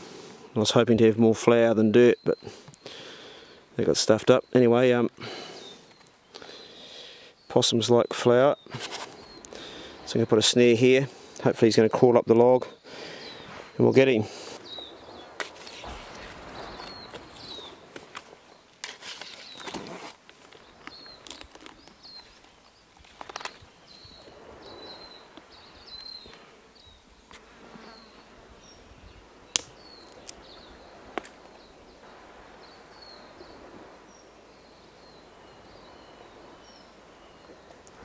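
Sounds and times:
twigs rustling and snapping: 15.3 - 24.3, 29.5 - 30.5, 31.1 - 31.6.

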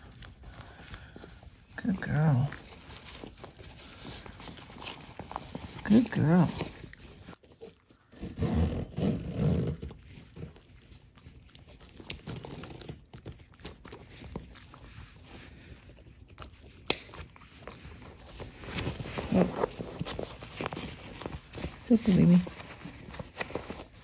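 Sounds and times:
puppy chewing treats: 9.8 - 24.0.

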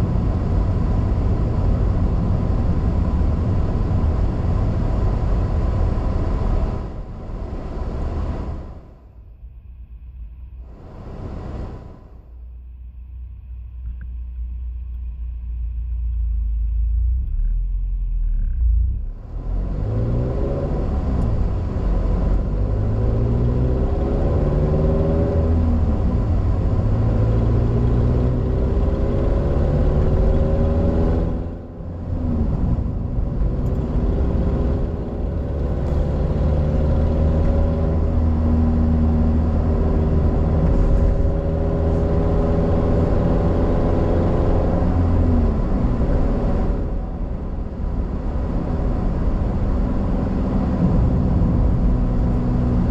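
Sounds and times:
low cabin rumble: 0.0 - 19.7, 31.6 - 43.3, 44.8 - 52.9
car engine accelerating: 10.6 - 12.4, 13.2 - 52.9.

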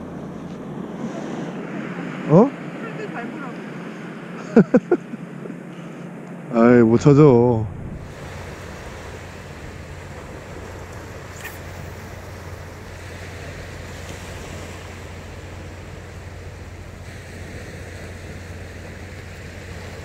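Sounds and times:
surf: 0.0 - 20.0
wind: 0.0 - 20.0
low steady rumble: 4.5 - 20.0.

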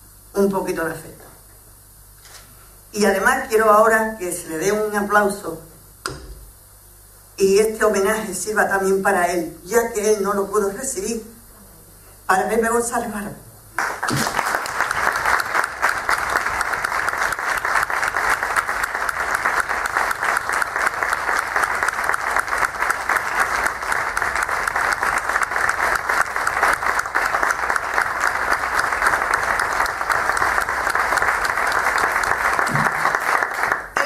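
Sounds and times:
audience applauding: 13.8 - 34.0.

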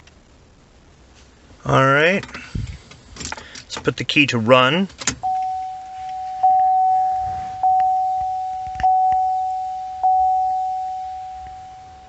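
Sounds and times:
dashboard warning chime: 5.2 - 12.0.

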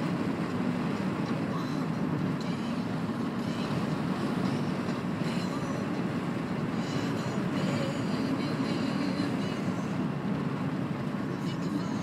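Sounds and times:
car engine and tyre noise: 0.0 - 12.0.

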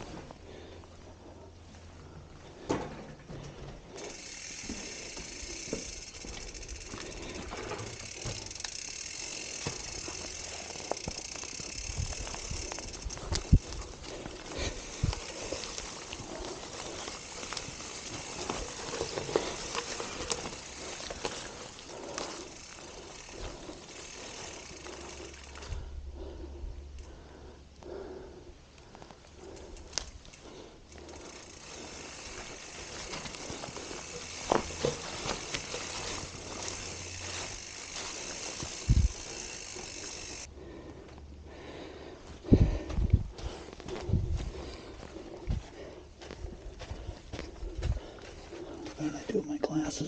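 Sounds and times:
bicycle freehub ticking: 3.9 - 42.1.

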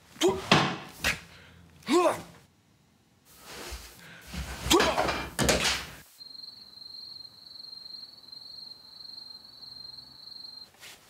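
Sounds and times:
high-pitched insect trill: 6.1 - 10.7.

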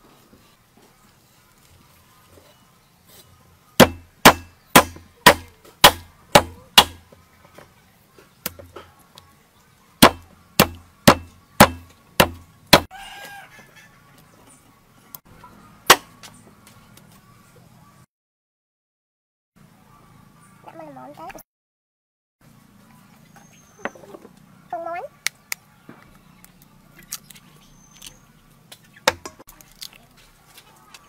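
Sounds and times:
cleaver chopping on wooden board: 3.8 - 7.0, 10.0 - 12.9.

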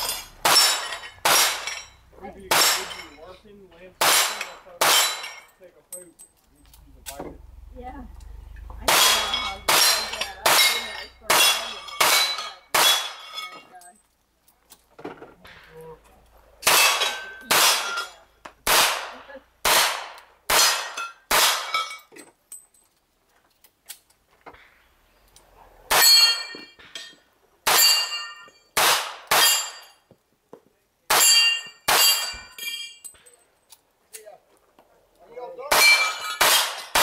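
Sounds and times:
clang of struck steel plate: 8.8 - 13.2.

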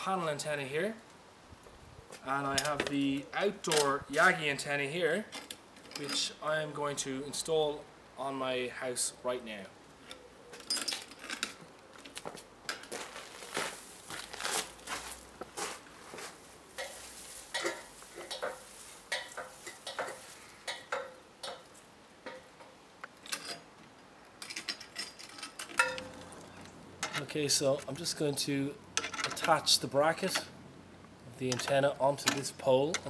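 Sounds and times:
metal ladder clinking: 16.7 - 23.7, 24.4 - 26.4.

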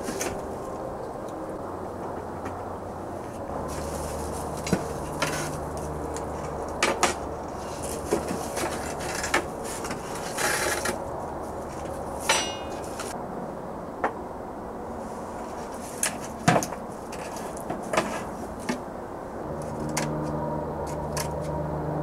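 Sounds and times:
metal tools clanking: 12.2 - 13.2
ringing metallic clink: 12.3 - 12.8.

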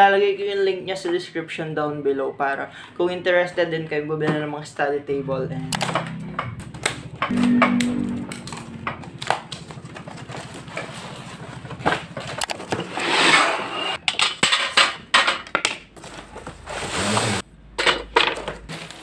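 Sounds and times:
cardboard rustling and scraping: 9.1 - 13.7, 16.0 - 17.4, 18.4 - 19.0.

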